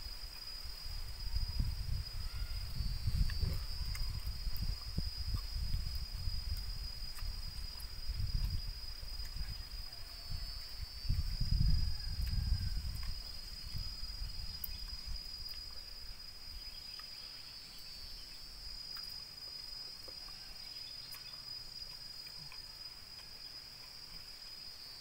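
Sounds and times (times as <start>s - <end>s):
high-pitched insect drone: 0.0s - 15.8s.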